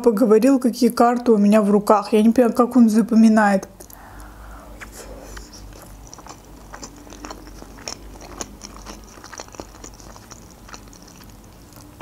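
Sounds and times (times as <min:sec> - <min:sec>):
person chewing: 0:03.7 - 0:12.0.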